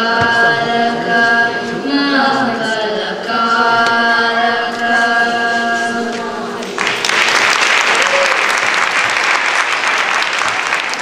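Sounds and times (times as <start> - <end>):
children singing: 0.0 - 6.8.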